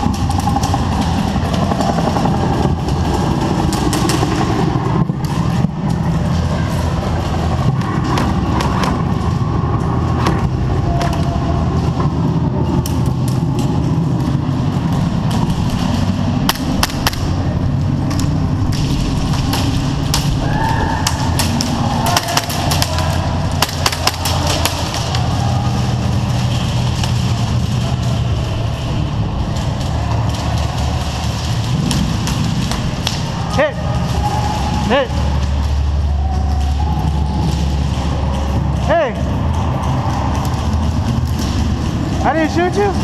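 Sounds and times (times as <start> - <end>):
steady low rumble: 0.0 - 43.0
airsoft guns firing: 15.9 - 28.1.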